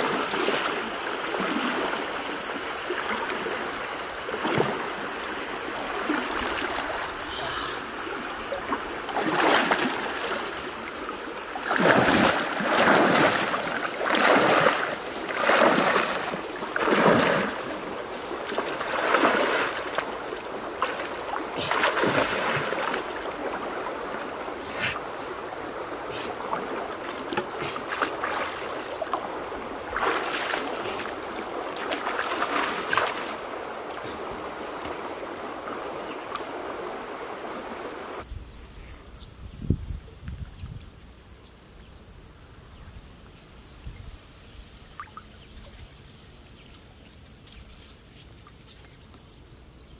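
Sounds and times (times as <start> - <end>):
water splashing from wading: 0.0 - 38.2
stream rushing: 0.0 - 38.3.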